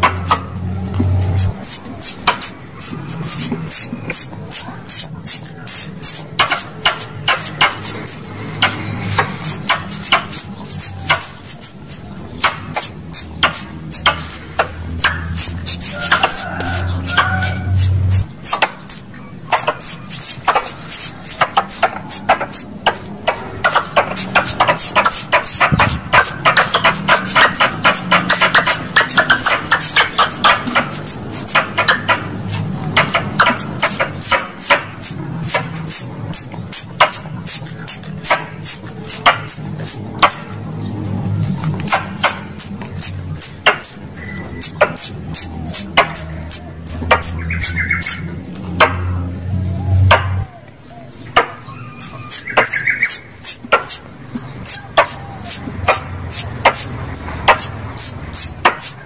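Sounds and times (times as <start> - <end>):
squirrel chirps: 0.0 - 40.8, 41.8 - 48.8, 51.3 - 59.0.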